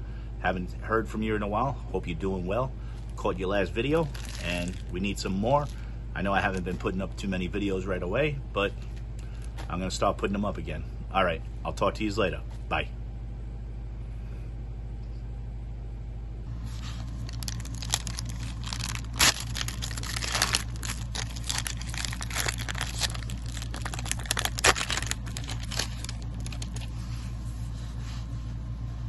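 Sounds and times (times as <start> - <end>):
foil wrapper tearing and crinkling: 4.0 - 5.0, 16.8 - 27.0.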